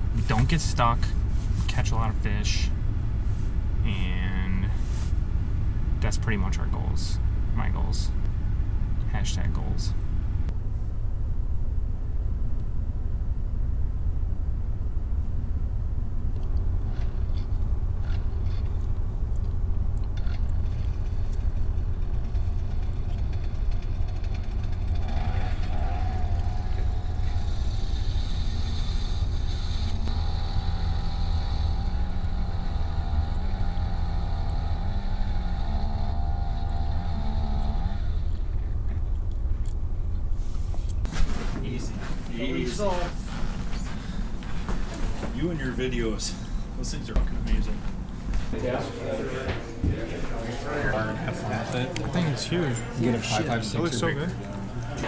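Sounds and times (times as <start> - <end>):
power ice auger motor: 22.2 - 38.5.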